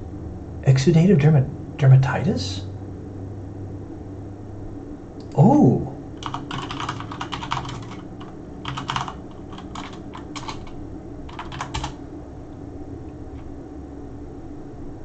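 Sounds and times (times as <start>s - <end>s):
steady low hum: 0.0s - 15.0s
typing on computer keyboard: 6.2s - 12.0s.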